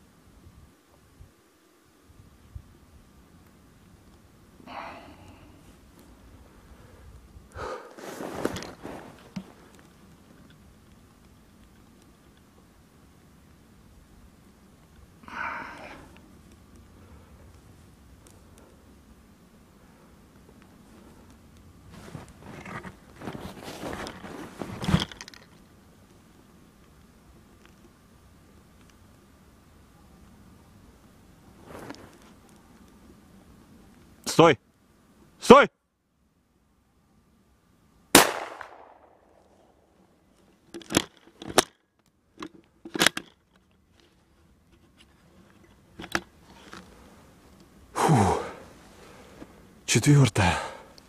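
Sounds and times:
rustling handling noise: 7.8s - 12.6s, 20.4s - 28.0s, 31.5s - 33.1s, 39.4s - 47.8s
rifle shot with echo: 38.1s - 39.4s.

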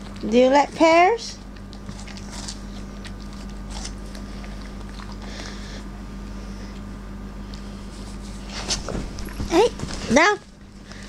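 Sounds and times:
dog chewing a pear: 0.0s - 5.9s
steady low hum: 0.0s - 11.0s
wet crunches and slurping licks: 1.4s - 5.6s.

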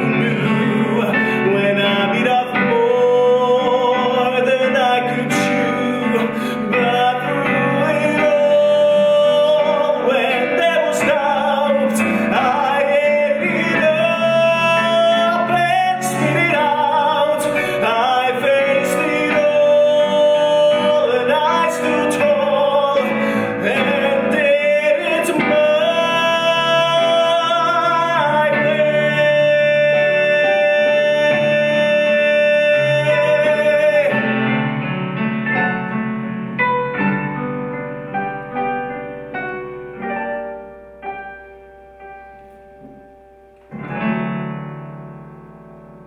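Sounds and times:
person singing: 0.0s - 34.9s
piano playing: 0.0s - 46.0s.

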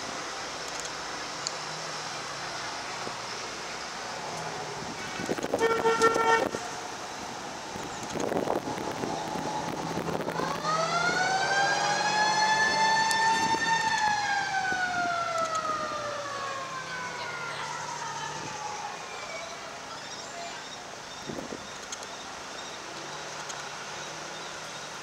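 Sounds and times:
fire truck engines: 0.0s - 25.0s
fire engine siren wailing: 5.4s - 7.2s, 8.3s - 20.0s.

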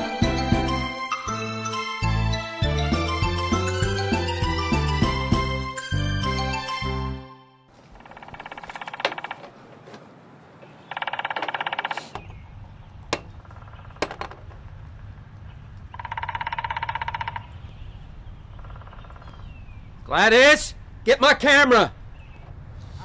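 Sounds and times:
woodpecker drumming: 7.8s - 9.6s, 10.6s - 20.0s.

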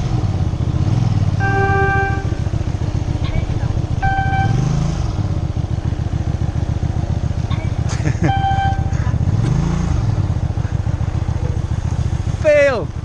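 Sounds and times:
motorcycle engine revving: 0.0s - 13.0s
electronic beep: 3.2s - 4.6s, 7.5s - 8.9s.

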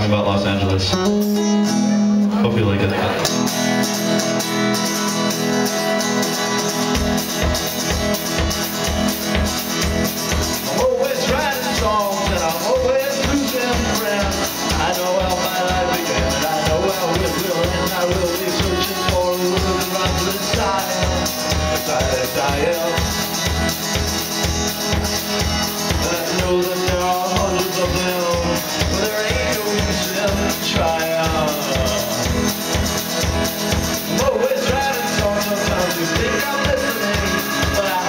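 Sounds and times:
acoustic and electric guitars: 0.0s - 38.0s
keyboard: 0.0s - 38.0s
drum-kit beat: 3.1s - 38.0s
man singing lead vocal: 10.5s - 23.7s, 25.7s - 32.8s, 33.6s - 38.0s.

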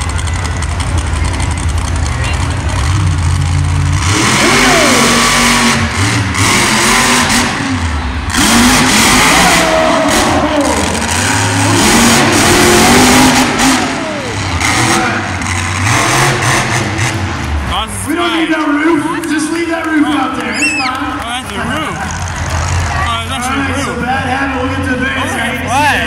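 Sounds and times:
truck engine revving: 0.0s - 26.0s.

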